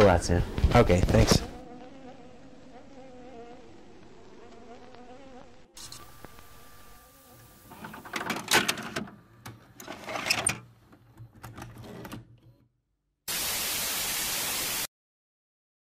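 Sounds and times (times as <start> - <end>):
tv static hiss: 4.2 - 8.2, 13.3 - 14.9
mechanical whirring: 5.8 - 10.6.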